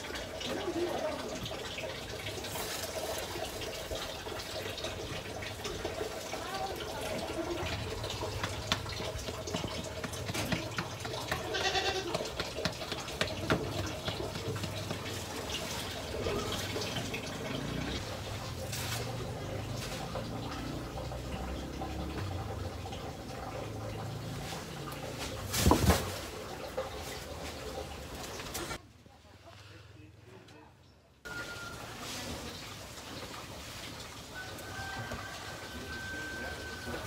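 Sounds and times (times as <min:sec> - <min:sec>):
calf chewing dry fodder: 0:07.2 - 0:16.9.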